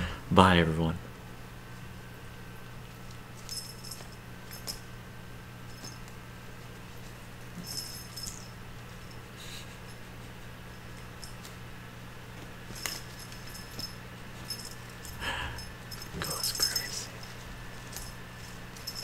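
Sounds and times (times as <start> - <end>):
steady low hum: 0.0 - 19.0
toy metallic jingle: 3.4 - 4.8, 7.6 - 9.2, 12.8 - 18.2, 18.8 - 19.0.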